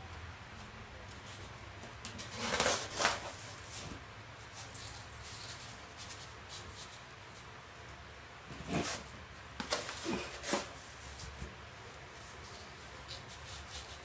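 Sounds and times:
rustling: 0:00.5 - 0:07.5.

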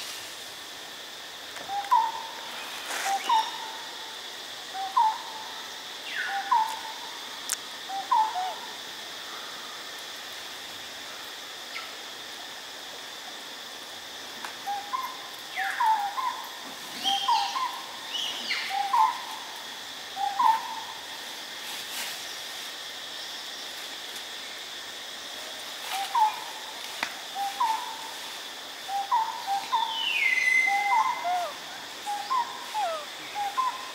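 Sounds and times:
high insect drone: 0:00.0 - 0:33.9
short animal calls: 0:30.8 - 0:33.6.

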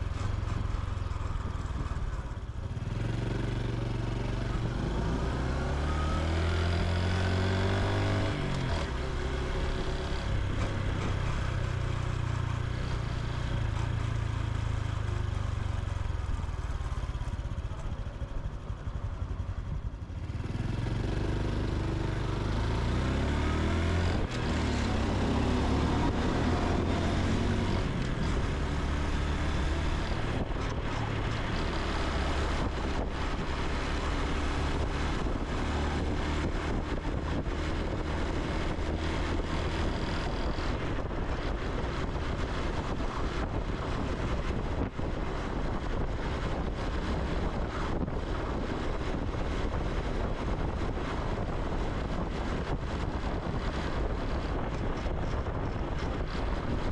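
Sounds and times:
motorcycle engine accelerating: 0:00.0 - 0:56.9.

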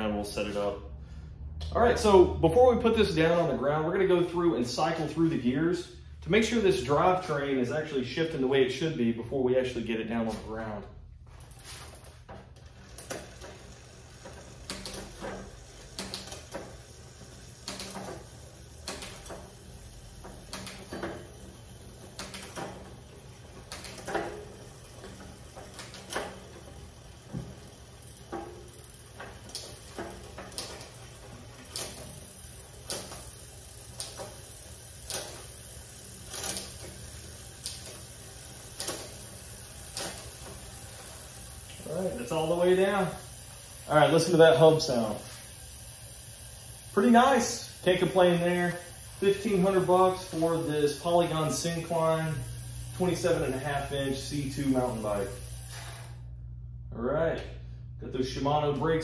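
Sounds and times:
bicycle chain and freewheel running: 0:09.6 - 0:56.4.

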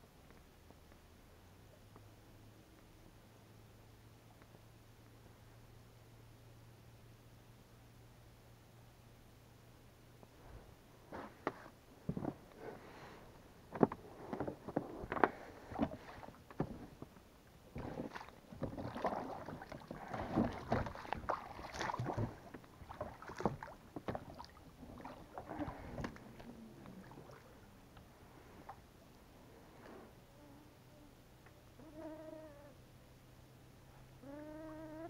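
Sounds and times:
knocks and clunks in a boat: 0:11.2 - 0:12.6, 0:13.7 - 0:27.4
water swishing: 0:15.0 - 0:30.2.

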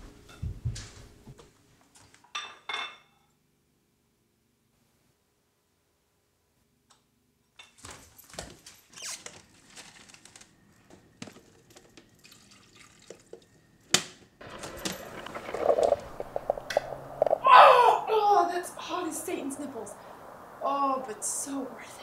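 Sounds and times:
liquid running and splashing: 0:12.2 - 0:13.4, 0:14.4 - 0:17.4.

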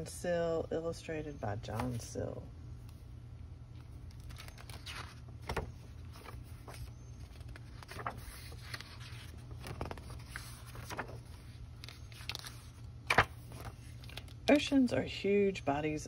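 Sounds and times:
low background hum: 0:00.0 - 0:16.0
book pages turning: 0:01.7 - 0:02.0, 0:03.8 - 0:14.7.

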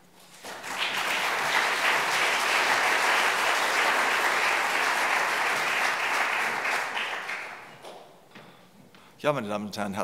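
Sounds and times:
audience applauding: 0:00.3 - 0:08.0.

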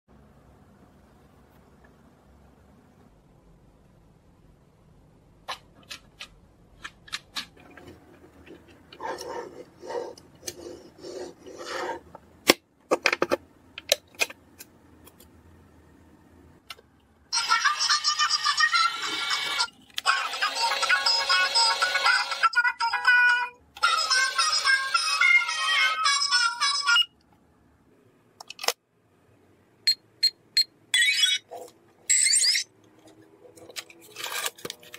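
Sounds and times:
synthetic children's song: 0:17.3 - 0:27.2
plastic rubbing and scraping: 0:32.9 - 0:34.9.

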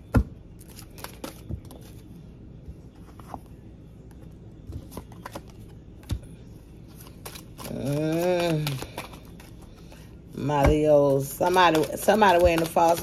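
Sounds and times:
cards being shuffled: 0:00.6 - 0:02.1, 0:04.7 - 0:13.0
cards snapping: 0:07.0 - 0:09.6.

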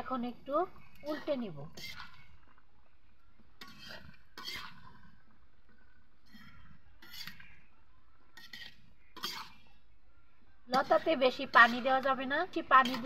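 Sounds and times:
metal spatula scraping a wok: 0:01.1 - 0:02.4, 0:03.6 - 0:05.1, 0:06.2 - 0:07.7, 0:08.4 - 0:09.7, 0:10.7 - 0:13.0.

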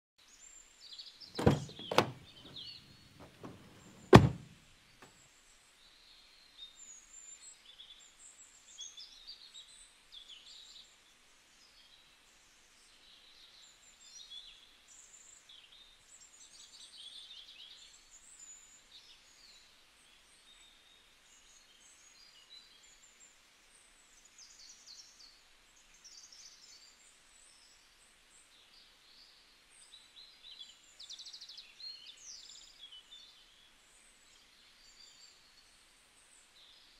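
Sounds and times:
birds chirping: 0:01.4 - 0:04.5
car tailgate thunks: 0:01.4 - 0:04.5.

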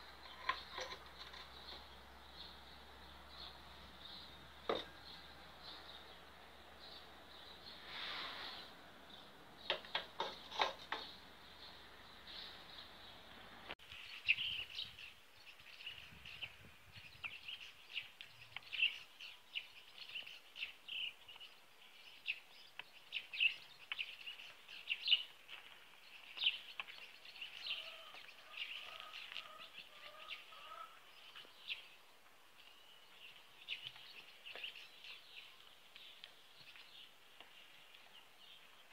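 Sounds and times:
small birds chirping: 0:00.0 - 0:38.9.

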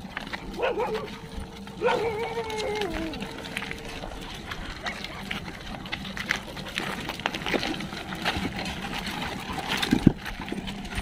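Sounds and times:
dog paws on loose stones: 0:00.0 - 0:11.0
footsteps on loose stones: 0:00.0 - 0:11.0.

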